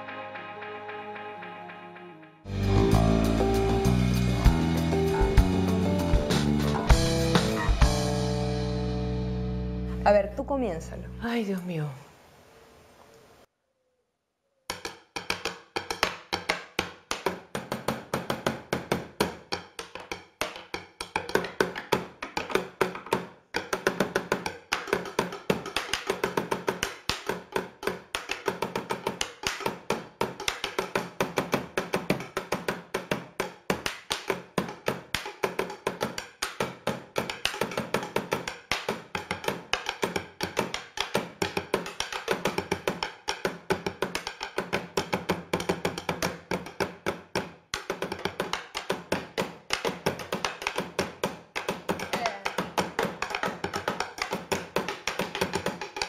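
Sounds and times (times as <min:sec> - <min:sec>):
chopsticks drumming on wood: 0:14.7 - 0:56.0.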